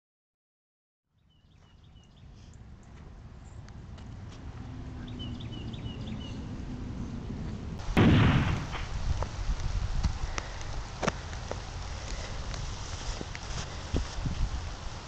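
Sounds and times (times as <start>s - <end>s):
loud gunshot: 7.8s - 9.0s
footsteps in dry leaves: 10.2s - 15.0s.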